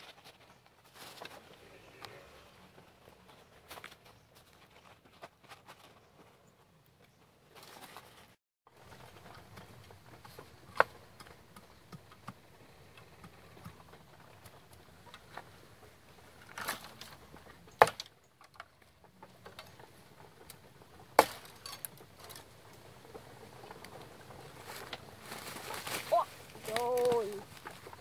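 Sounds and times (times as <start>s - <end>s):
rustling in dry leaf litter: 23.4s - 28.0s.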